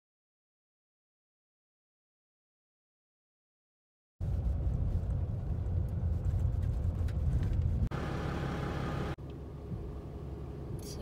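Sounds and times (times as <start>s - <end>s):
vehicle driving on gravel road: 4.2s - 11.0s.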